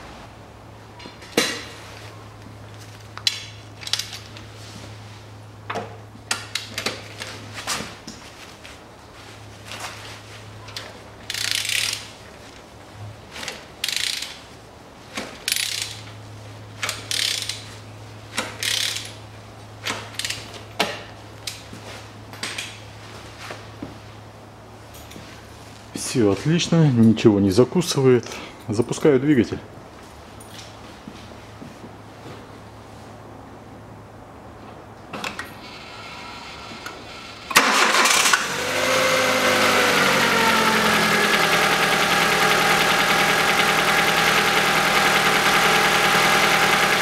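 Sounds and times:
ratchet wrench clicking: 11.3 - 12.0, 13.8 - 14.4, 15.5 - 16.0, 16.8 - 17.6, 18.6 - 19.2.

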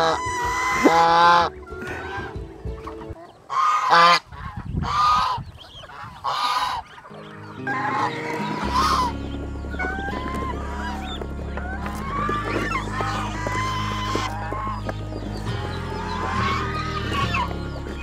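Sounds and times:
goose honking: 0.0 - 18.0.

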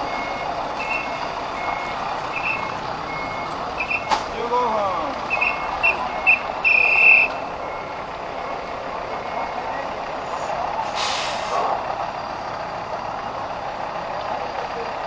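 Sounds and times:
reversing alarm beeping: 0.0 - 4.2, 5.2 - 10.2, 11.1 - 15.0
truck engine running: 0.0 - 15.0
air brake hiss: 10.2 - 11.8.

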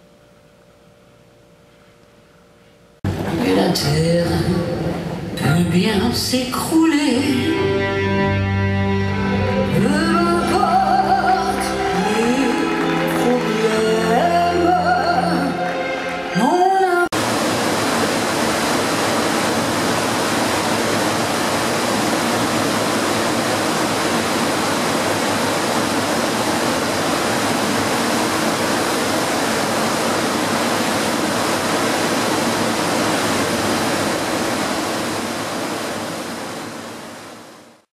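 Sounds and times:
rushing water: 9.2 - 37.9.

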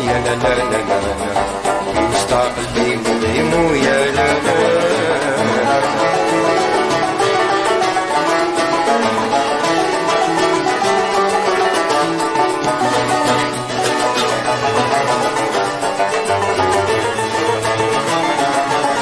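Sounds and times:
plucked string instruments melody: 0.0 - 19.0.

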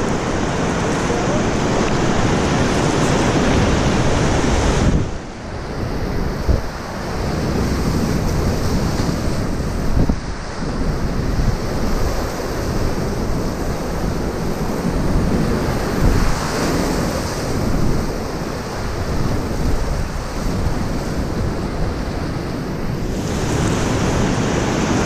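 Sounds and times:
whitewater rapids rushing: 0.0 - 5.4
waves splashing over bow: 0.0 - 25.0
wind buffeting microphone: 0.0 - 25.0.

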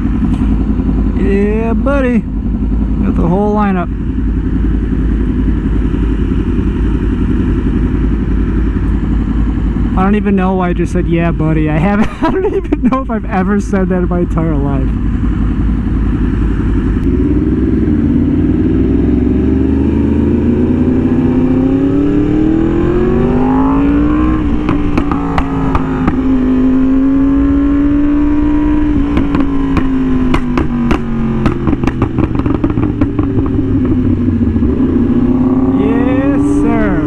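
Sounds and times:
motorcycle engine accelerating: 0.0 - 37.0
exhaust popping: 12.7 - 37.0.

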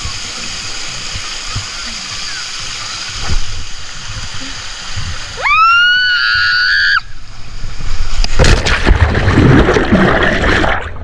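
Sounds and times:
underwater churning and bubbling: 7.2 - 11.0
splash into pool: 8.3 - 11.0.

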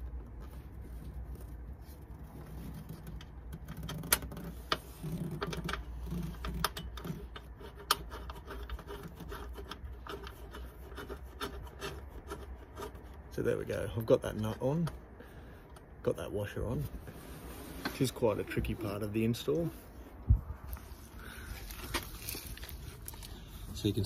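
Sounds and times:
metallic clicks and scrapes: 0.0 - 15.9, 20.6 - 24.0
steady low rumble: 13.1 - 24.0.

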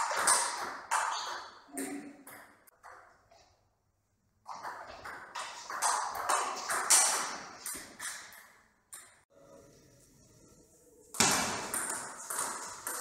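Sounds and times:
ball bouncing: 0.0 - 3.6, 4.4 - 9.2, 11.1 - 13.0.

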